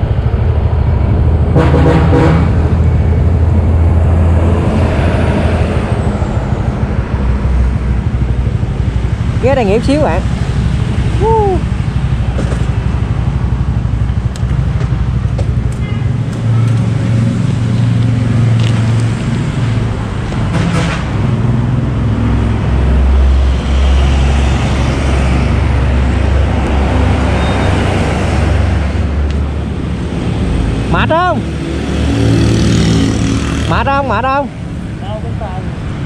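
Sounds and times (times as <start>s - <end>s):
highway traffic rumble: 0.0s - 36.0s.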